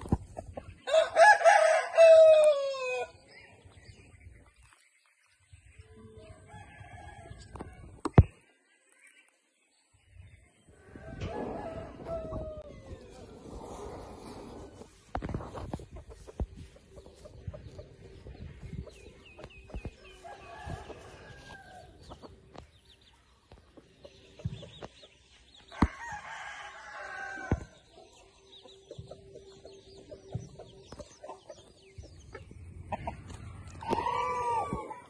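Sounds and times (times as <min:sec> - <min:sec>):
rooster crowing: 0:00.9 - 0:03.1.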